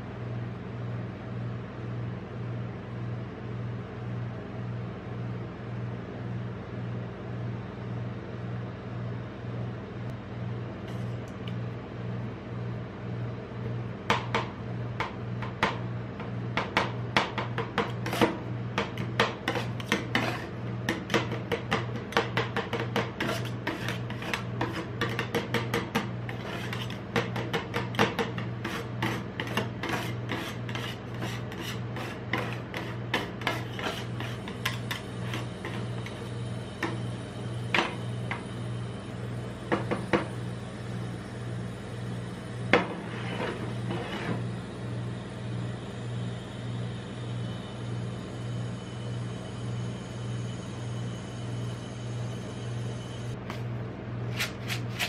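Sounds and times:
steady low hum: 0.0s - 55.0s
spatulas scraping steel plate: 17.6s - 37.0s, 42.8s - 44.4s, 54.3s - 55.0s.

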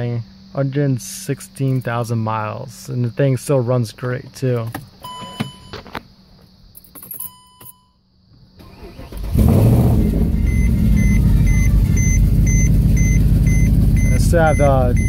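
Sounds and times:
engine cranking and loud idle: 8.6s - 15.0s
warning chime beeping: 10.0s - 15.0s.

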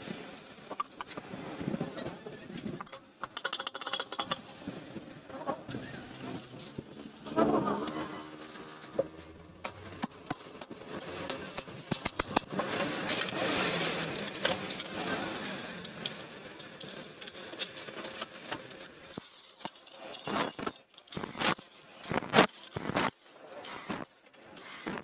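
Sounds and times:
metal tools jangling: 8.2s - 12.5s.

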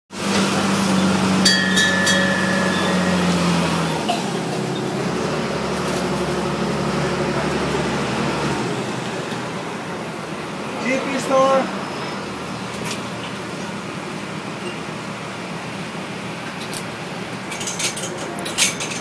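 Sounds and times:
tram engine hum: 0.2s - 18.9s
short metallic clinks: 1.5s - 4.3s.

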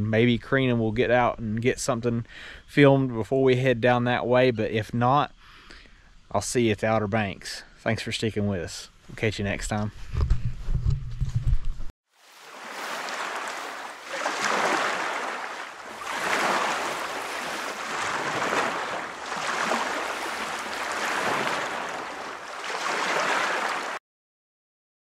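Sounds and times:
ocean waves washing in: 12.1s - 24.0s.

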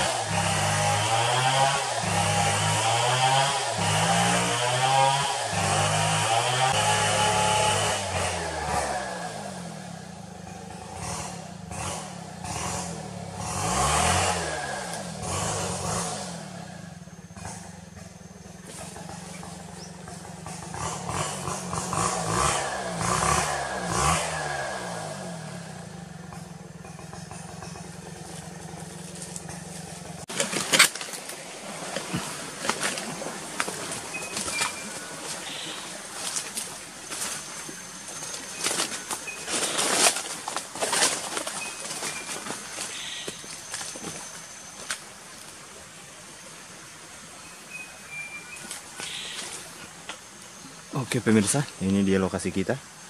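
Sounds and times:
chainsaw cutting wood: 0.0s - 45.4s
footsteps on dry leaves: 27.5s - 45.5s, 48.5s - 50.0s.

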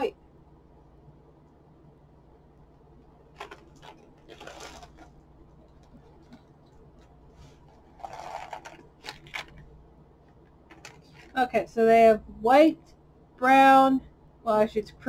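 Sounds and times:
low steady hum: 0.0s - 15.0s
plastic bag crinkling: 3.2s - 11.4s
candies clicking: 7.8s - 9.7s.

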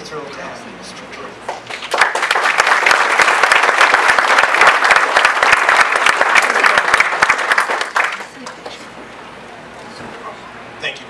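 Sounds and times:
audience applauding: 1.5s - 8.8s.

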